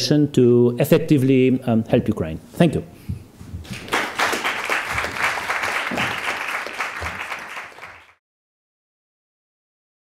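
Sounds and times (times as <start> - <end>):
audience applauding: 3.7 - 8.2.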